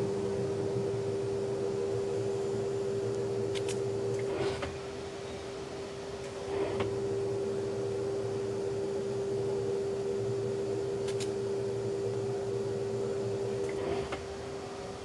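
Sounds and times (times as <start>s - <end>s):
machine motor hum: 0.0s - 15.0s
sharp click: 3.5s - 4.7s, 11.0s - 11.4s.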